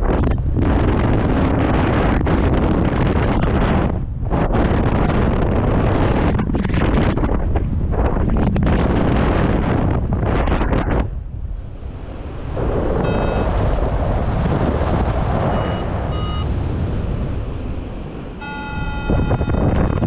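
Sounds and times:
wind buffeting microphone: 0:00.0 - 0:20.0
variometer beeps: 0:13.0 - 0:13.6, 0:15.5 - 0:16.5, 0:18.4 - 0:20.0.

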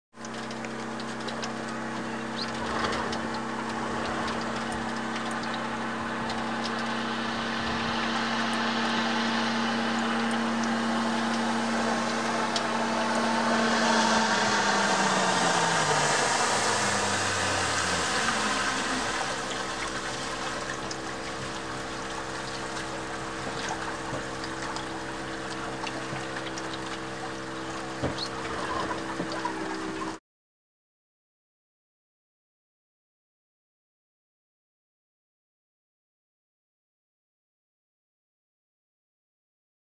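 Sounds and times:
water from hull and wake: 0:00.1 - 0:30.2
motorboat engine: 0:00.2 - 0:30.2.

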